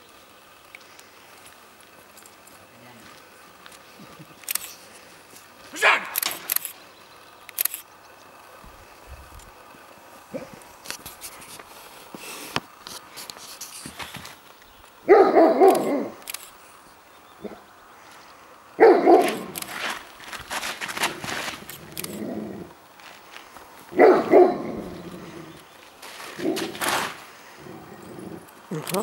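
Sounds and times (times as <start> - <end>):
dog barking: 15.0 - 16.2, 17.4 - 17.6, 18.8 - 19.6, 24.0 - 24.8.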